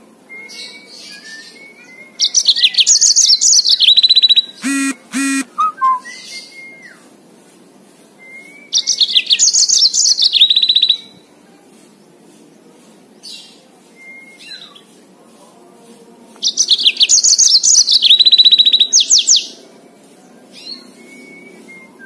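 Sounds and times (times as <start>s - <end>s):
canary singing trills: 2.2s - 6.5s, 16.5s - 19.5s
short buzzy bird notes: 4.6s - 6.0s.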